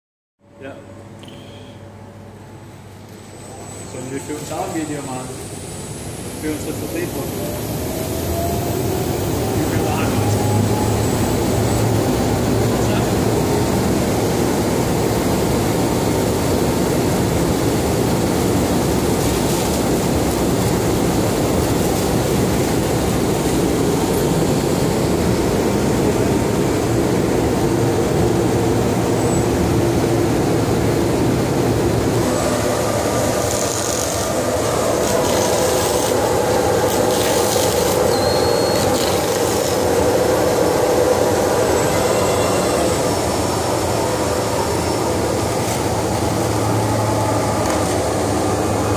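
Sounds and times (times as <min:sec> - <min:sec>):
cutting machine mechanical drone: 0:32.0 - 0:48.9.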